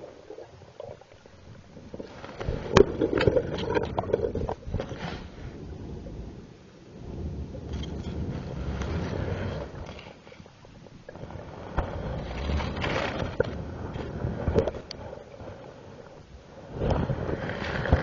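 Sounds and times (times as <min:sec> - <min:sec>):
muffled underwater rushing: 0:00.0 - 0:18.0
camera knocking underwater: 0:02.0 - 0:05.0.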